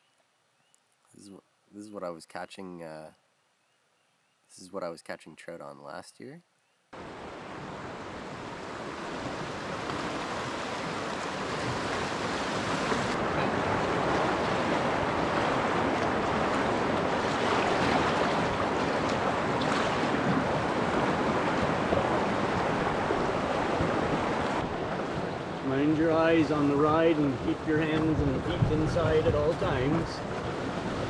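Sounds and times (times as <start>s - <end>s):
river rapid rushing water: 7.0s - 31.0s.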